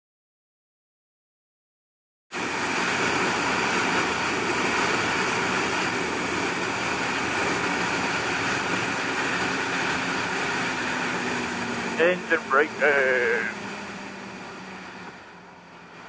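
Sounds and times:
motorcycle engine cruising: 5.5 - 16.0.

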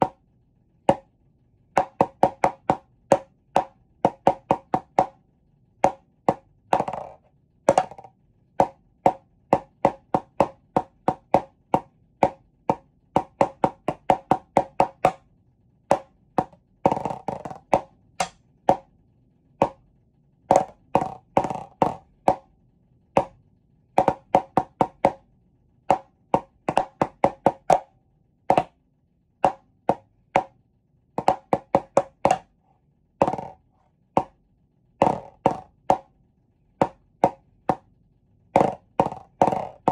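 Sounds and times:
drumsticks striking hard surface: 15.9 - 18.8.

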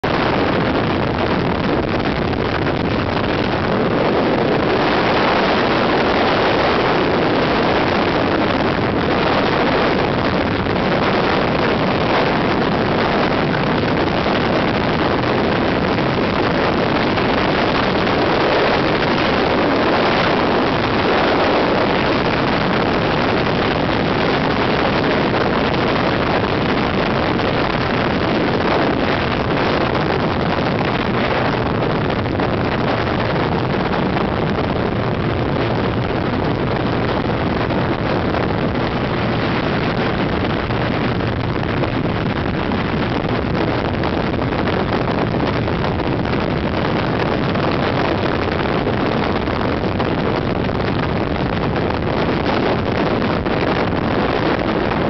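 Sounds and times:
wind rushing over microphone: 0.0 - 55.0.

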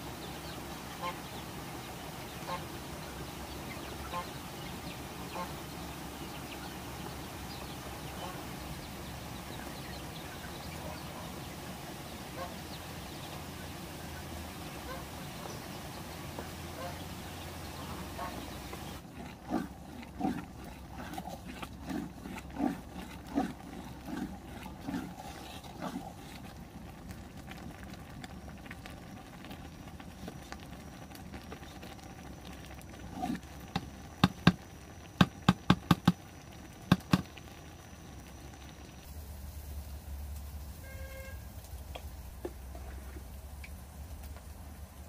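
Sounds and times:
stick scraping in metal pot: 18.6 - 26.6.

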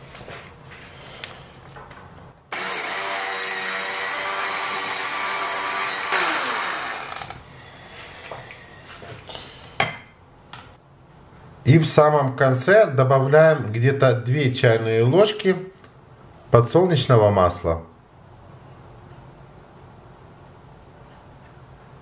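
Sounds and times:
electric hand mixer whirring: 2.5 - 7.4.

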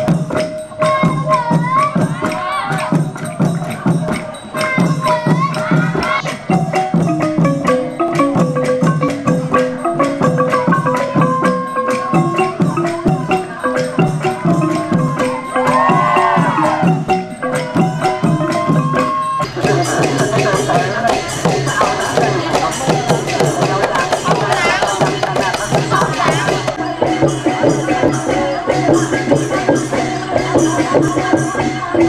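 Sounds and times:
long drums playing a beat: 0.0 - 32.0
small cymbals jingling: 0.0 - 32.0
wavering held melody: 0.0 - 32.0.

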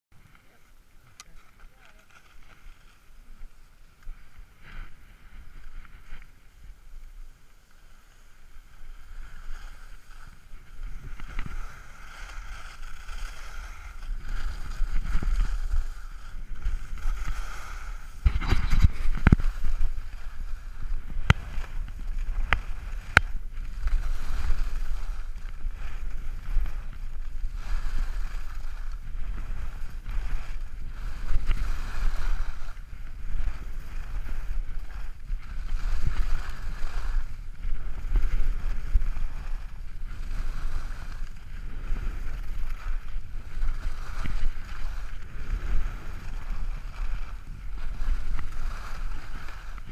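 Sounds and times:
skis scraping on snow: 0.2 - 49.9
wind on microphone: 0.2 - 49.9.

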